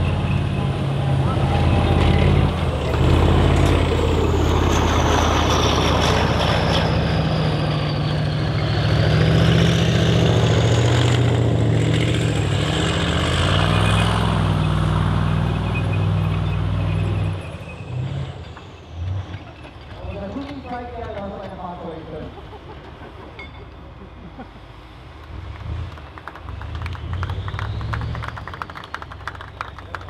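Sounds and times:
diesel engine under load: 0.0s - 30.0s.

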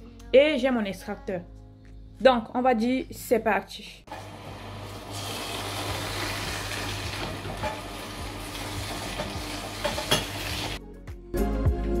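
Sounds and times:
celery crackling in juicer: 4.1s - 10.8s
juicer motor hum: 4.1s - 10.8s
background music with beat: 8.2s - 12.0s.

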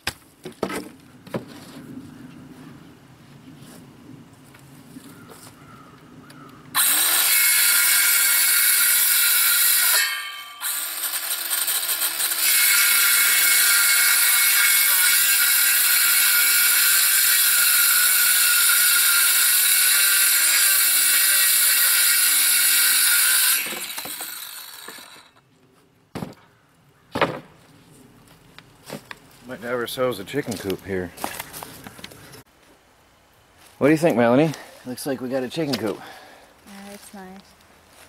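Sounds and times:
circular saw cutting wood: 6.7s - 25.4s
saw blade spinning down: 6.8s - 25.4s.

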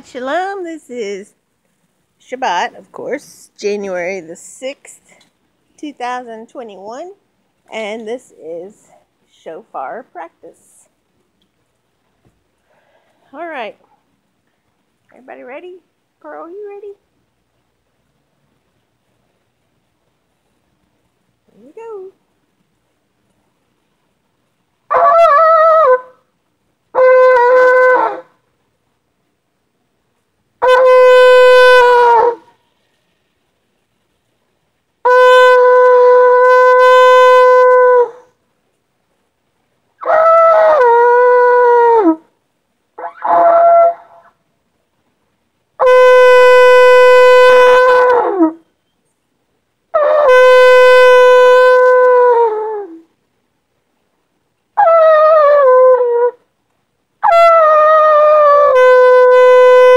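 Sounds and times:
shofar blasts: 30.6s - 32.6s, 35.0s - 38.2s, 45.8s - 48.6s, 50.0s - 52.5s, 58.3s - 59.9s.

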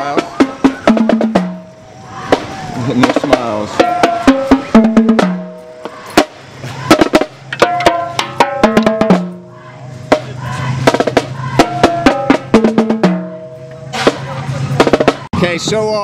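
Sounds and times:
marching snare drums: 0.0s - 15.4s
punchy brass chords: 7.0s - 15.2s.

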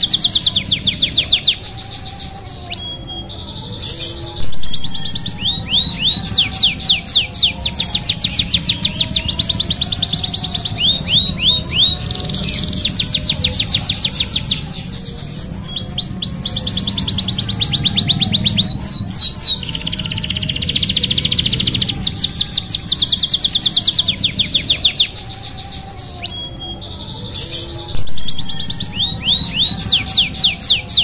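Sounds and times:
canary singing: 0.0s - 31.0s.

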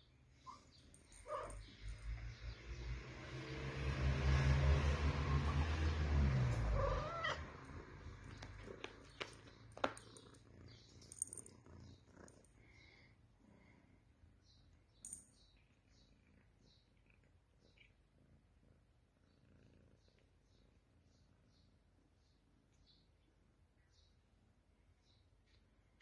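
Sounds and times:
cat purring: 6.5s - 13.8s, 15.8s - 21.6s
cat meow: 6.6s - 7.6s.

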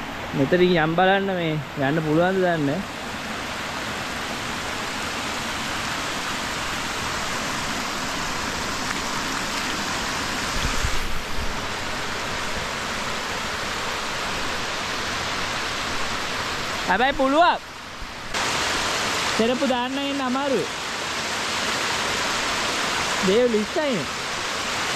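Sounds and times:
stream water rushing over rocks: 0.0s - 24.9s.

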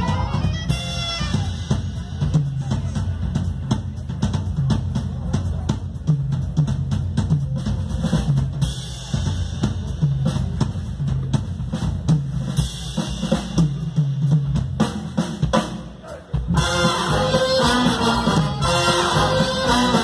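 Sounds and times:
drum kit groove: 0.0s - 20.0s
electric bass line: 16.6s - 20.0s.

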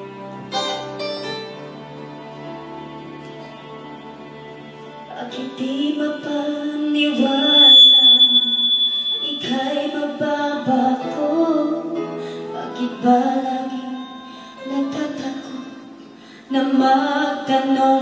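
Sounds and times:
karaoke backing track: 5.0s - 18.0s
woman singing into microphone: 5.1s - 18.0s.

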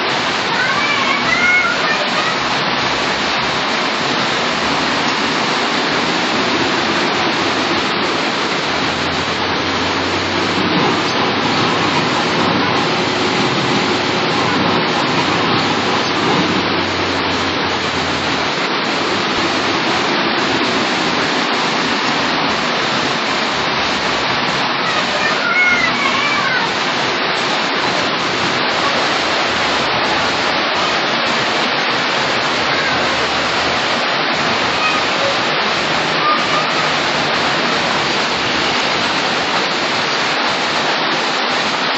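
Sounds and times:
heavy rain: 0.0s - 41.9s
vehicle engine humming: 5.2s - 23.1s.

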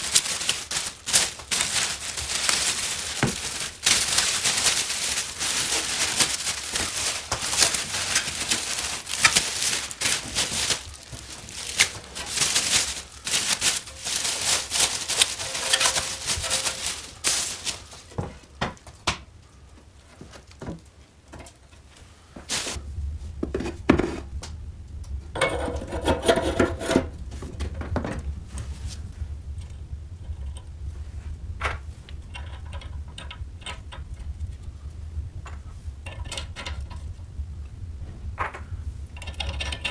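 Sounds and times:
plastic wrap tearing and crackling: 0.0s - 18.2s, 22.5s - 22.8s
handling knocks: 0.0s - 19.3s
low hum: 22.2s - 39.9s.

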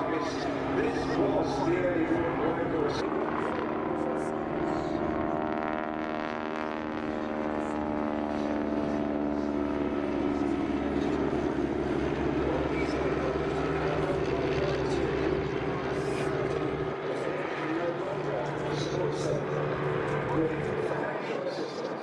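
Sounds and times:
aircraft engines droning: 0.0s - 22.0s.

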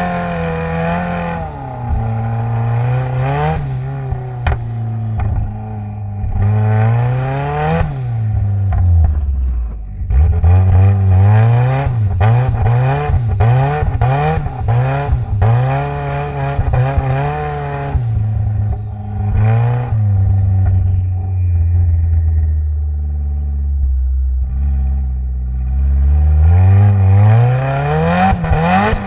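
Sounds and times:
car engine revving: 0.0s - 29.0s.

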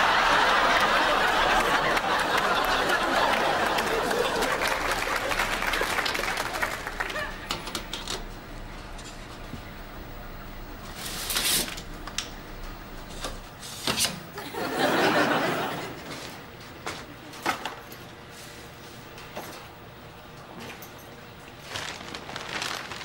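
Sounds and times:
studio audience laughing: 0.0s - 7.6s, 14.3s - 16.4s.

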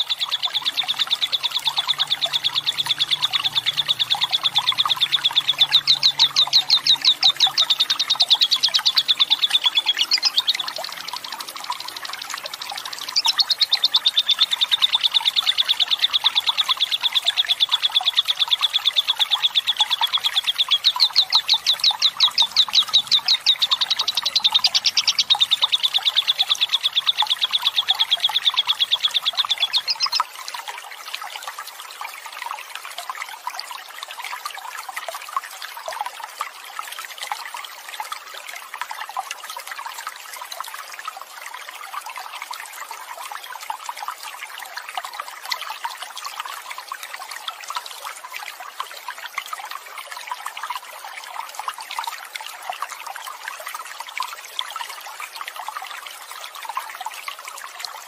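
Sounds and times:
bird chattering trill: 0.0s - 12.0s, 12.8s - 30.2s
running water: 0.0s - 58.0s.

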